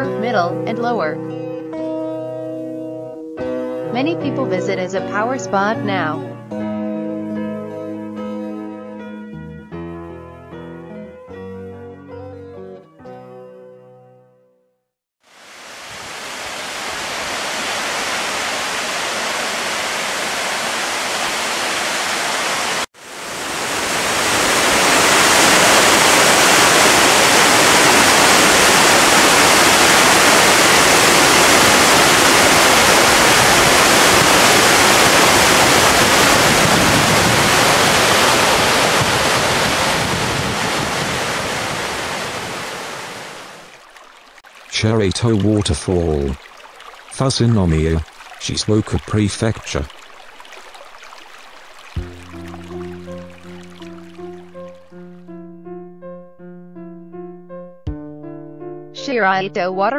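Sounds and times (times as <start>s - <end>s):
waterfall rushing over rock: 15.3s - 54.9s.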